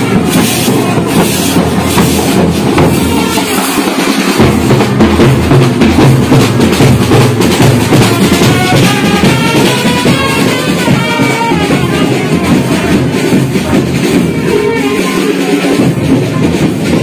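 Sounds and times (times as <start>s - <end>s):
bass drums beating: 0.0s - 3.6s, 4.3s - 14.8s
trumpet playing a tune: 0.0s - 4.4s, 7.8s - 17.0s.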